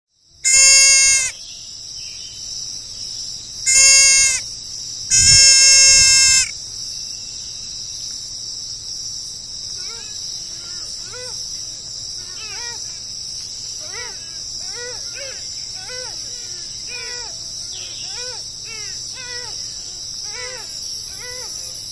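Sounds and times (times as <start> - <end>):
animal bleating: 0.4 - 1.3, 3.7 - 4.4, 5.1 - 6.5
high-pitched insect drone: 0.5 - 1.5, 3.4 - 7.8, 9.6 - 21.9
faint chirping bird calls: 0.5 - 4.4, 5.1 - 6.5, 9.8 - 21.9.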